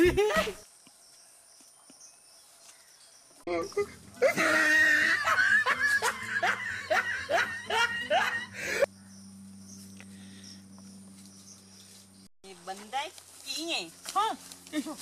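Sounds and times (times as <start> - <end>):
person laughing: 0.0 - 0.6, 3.5 - 8.9
faint low hum: 3.6 - 12.6.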